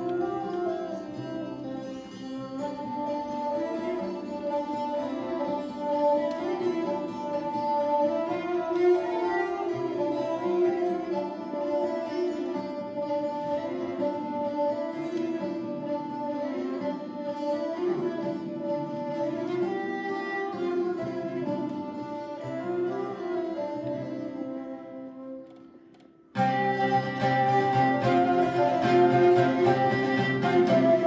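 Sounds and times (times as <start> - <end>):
bowed viella: 0.0 - 31.0
flute: 0.0 - 31.0
plucked lute: 0.0 - 31.0.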